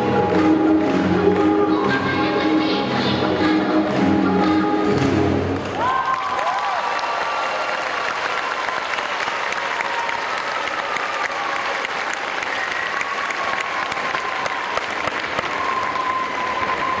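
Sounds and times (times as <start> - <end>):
audience applauding: 5.4 - 17.0.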